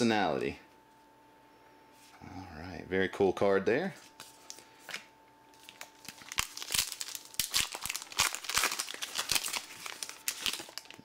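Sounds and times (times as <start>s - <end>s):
foil wrapper tearing and crinkling: 5.6s - 11.0s.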